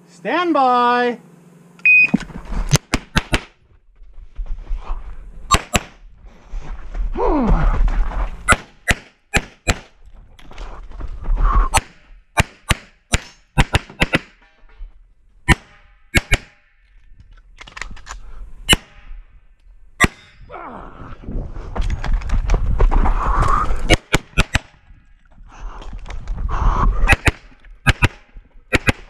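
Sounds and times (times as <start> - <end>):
pistol shots: 8.5 - 9.9, 15.5 - 16.6, 23.9 - 24.8, 27.1 - 29.0.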